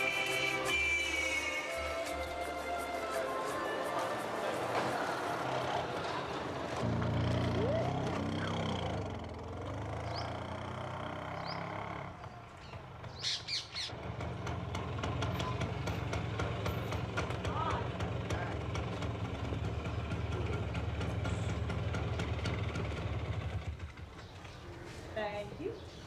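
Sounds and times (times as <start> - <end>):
birds chirping and calling: 9.9 - 10.6, 11.2 - 14.0, 23.9 - 26.0.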